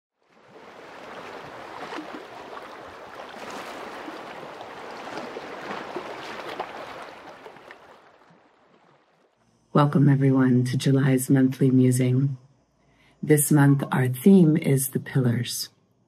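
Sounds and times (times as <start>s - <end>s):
sea waves washing over shallows: 0.2s - 9.3s.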